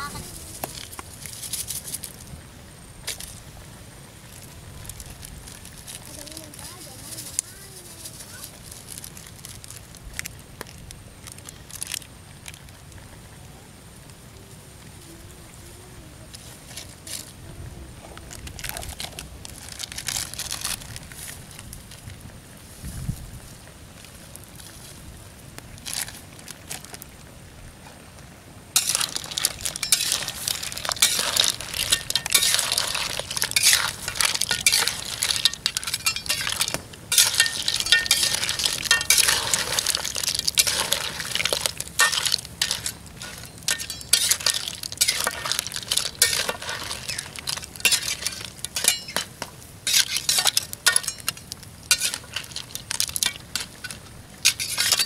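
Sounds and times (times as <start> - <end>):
metal spatula scraping wok: 28.8 - 55.0.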